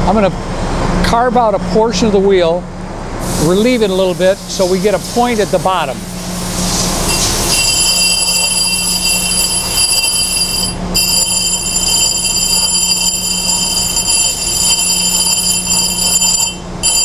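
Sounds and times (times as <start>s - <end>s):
spindle hum: 6.3s - 17.0s
grinding wheel high-pitched screech: 7.1s - 17.0s.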